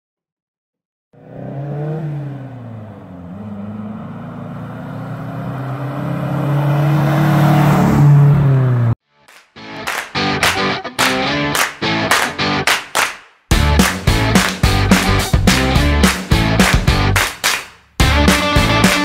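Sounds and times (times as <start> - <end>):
truck engine revving: 1.2 - 9.0.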